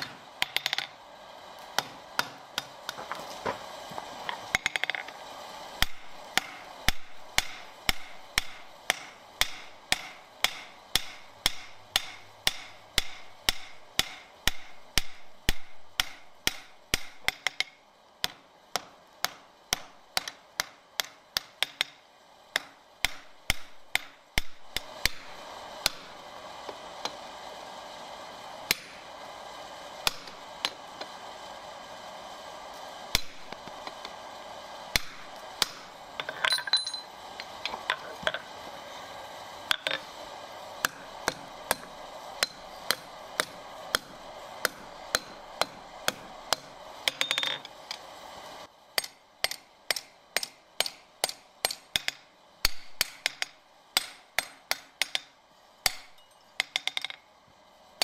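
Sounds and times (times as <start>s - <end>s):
steady hiss: 0.0s - 58.0s
hammer ringing on anvil: 36.5s - 37.1s.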